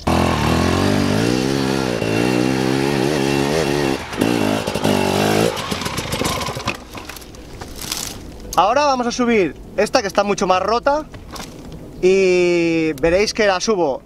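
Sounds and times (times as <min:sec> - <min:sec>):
dirt bike engine revving: 0:00.0 - 0:08.2.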